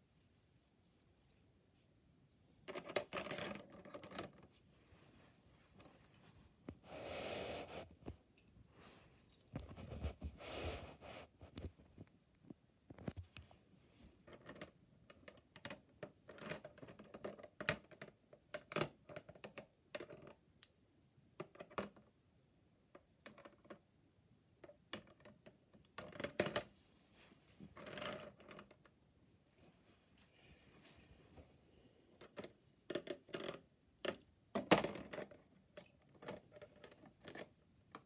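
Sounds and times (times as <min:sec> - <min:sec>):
plastic parts rattling: 0:02.6 - 0:04.5.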